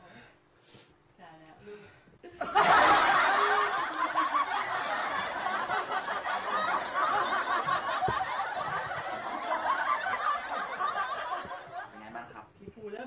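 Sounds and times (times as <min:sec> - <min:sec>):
people giggling: 0:02.3 - 0:12.2
people laughing: 0:02.3 - 0:12.2.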